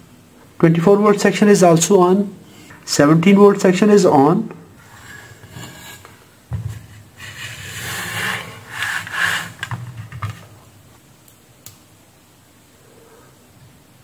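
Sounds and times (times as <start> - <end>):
circuit board scraping on table: 4.8 - 10.6.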